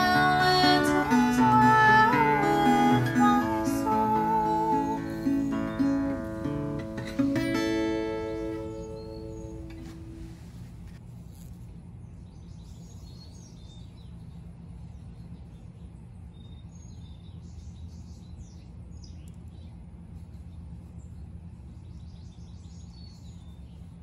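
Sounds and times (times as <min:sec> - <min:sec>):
birds chirping: 0:00.0 - 0:10.9, 0:12.0 - 0:24.0
low outdoor rumble: 0:00.0 - 0:24.0.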